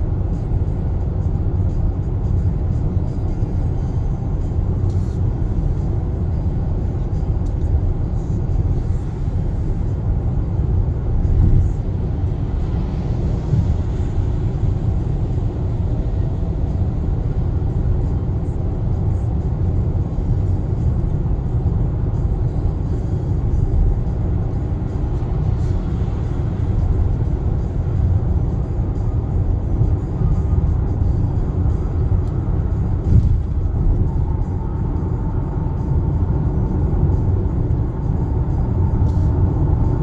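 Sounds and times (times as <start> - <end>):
car interior road noise: 0.0 - 40.0.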